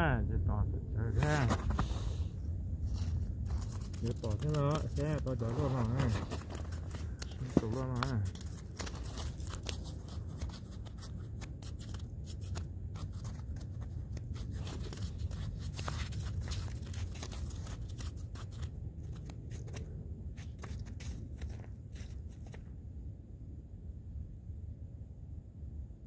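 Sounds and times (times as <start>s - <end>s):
wind rumble on microphone: 0.0s - 26.0s
handling clicks and rustles: 2.8s - 22.7s.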